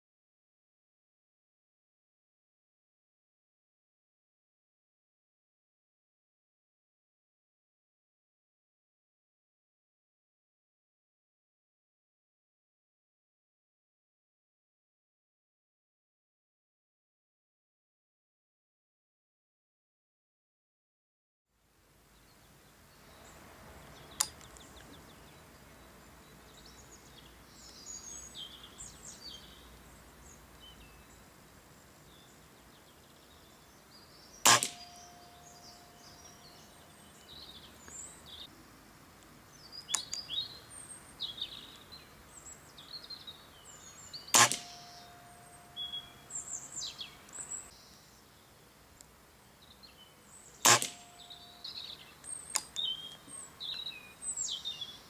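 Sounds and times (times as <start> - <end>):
songbirds chirping: 21.8 - 55.0
sharp click: 24.2 - 24.7, 34.4 - 35.2, 39.9 - 40.2, 44.3 - 45.1, 50.6 - 51.3, 52.2 - 52.8
air rifle shots: 34.4 - 35.1, 44.3 - 45.0, 50.6 - 51.2
ringing tone: 44.7 - 46.2.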